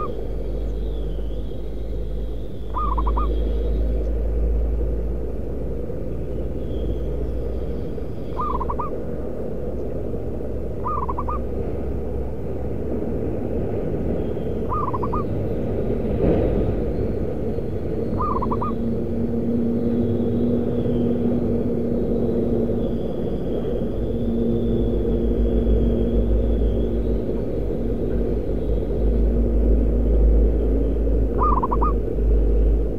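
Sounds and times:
steady low rumble: 0.0 - 32.9
dove cooing: 2.7 - 3.4, 8.4 - 9.0, 10.8 - 11.5, 14.7 - 15.4, 18.1 - 19.0, 31.4 - 32.0.

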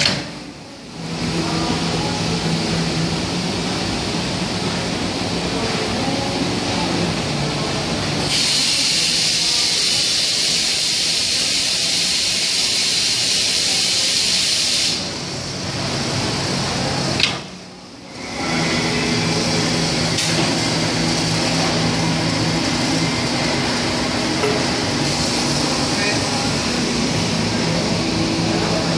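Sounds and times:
gas purge hissing: 8.2 - 15.5
machine humming: 17.9 - 28.9.

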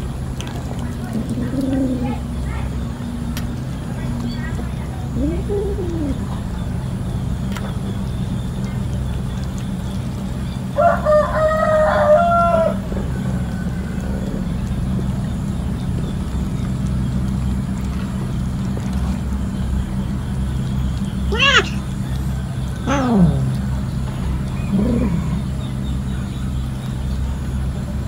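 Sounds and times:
steady low hum: 0.0 - 28.0
rooster crowing: 10.7 - 14.2.

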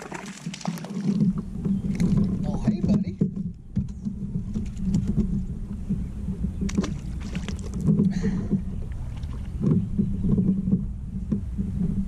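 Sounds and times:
water splash: 0.0 - 2.4, 6.7 - 7.9, 8.9 - 9.6
low water rumble: 0.0 - 12.0.

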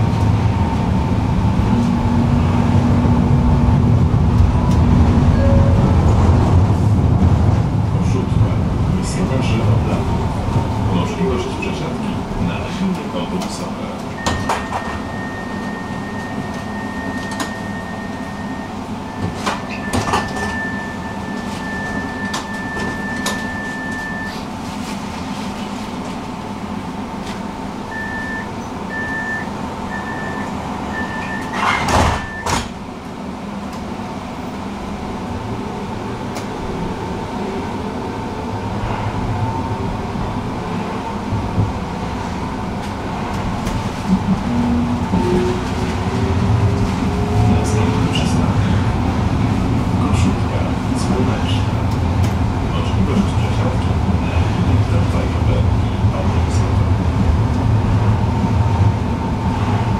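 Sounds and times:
tram electrical hum: 0.0 - 59.9
short warning beeps: 14.2 - 24.4, 27.9 - 31.6
sliding doors shutting with thud: 31.3 - 32.8.

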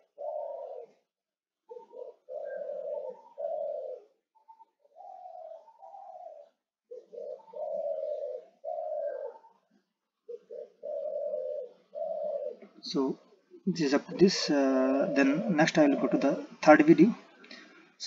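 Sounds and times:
dove cooing: 0.0 - 17.3.

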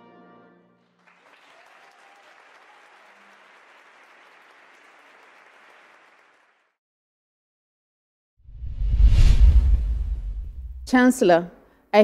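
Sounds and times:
crowd applause: 0.8 - 6.8.

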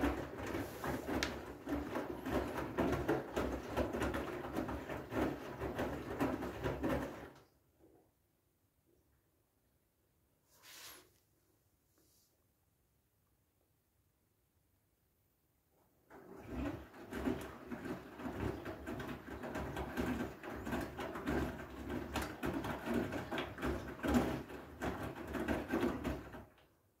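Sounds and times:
washing machine drum sloshing: 0.0 - 7.4, 16.1 - 26.7.

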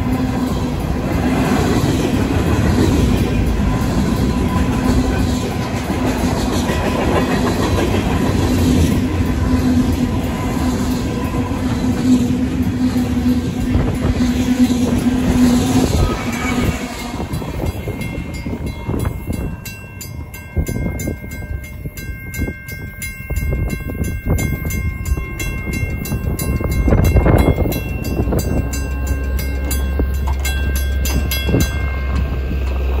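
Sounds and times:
freight train rumbling: 0.0 - 33.0
mechanical crossing bell ringing: 16.9 - 32.8.

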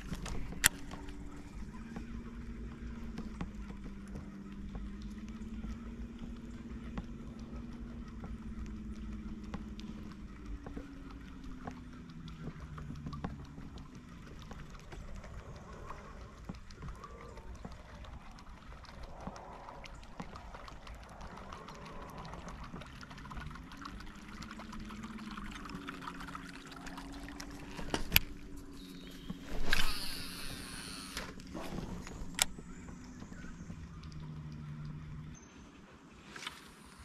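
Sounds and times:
distant boat engine humming: 0.0 - 37.0
fishing line rushing hiss: 29.5 - 31.3
fishing reel click: 29.6 - 31.4.

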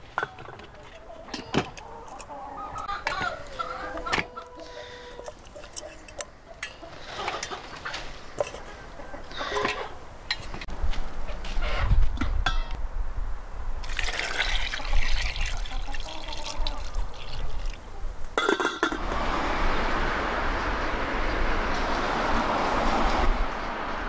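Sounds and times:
water pouring into a metal pot: 13.8 - 17.8.

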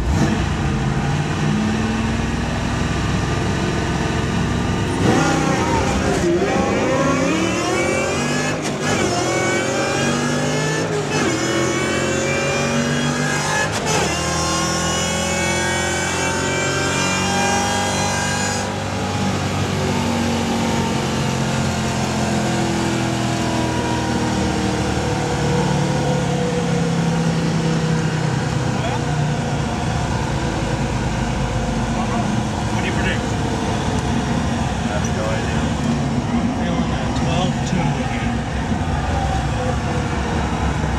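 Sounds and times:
drag car engine accelerating: 0.0 - 40.9.

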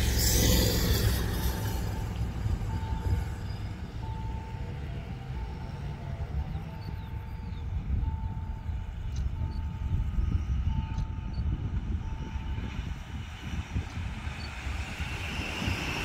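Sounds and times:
low rumble: 0.0 - 4.5
level crossing warning beeps: 1.9 - 13.0.

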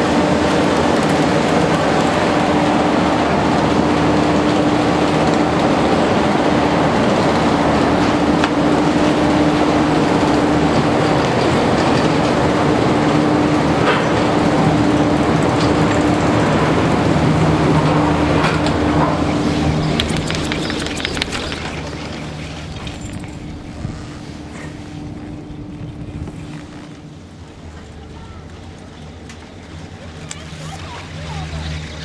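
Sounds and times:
machinery drone: 0.0 - 32.0.

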